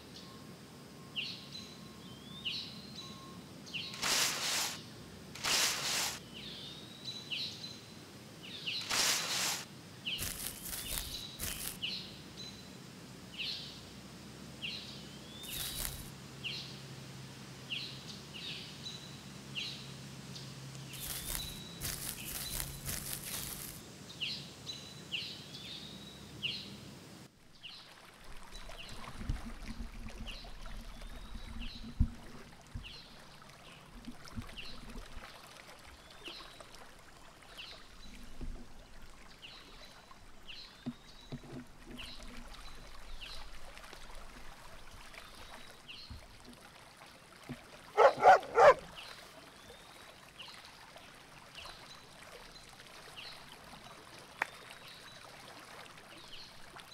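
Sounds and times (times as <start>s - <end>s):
small birds chirping: 8.4s - 12.7s, 14.6s - 16.7s, 19.6s - 26.8s, 48.0s - 50.6s
stream rushing: 8.8s - 11.8s.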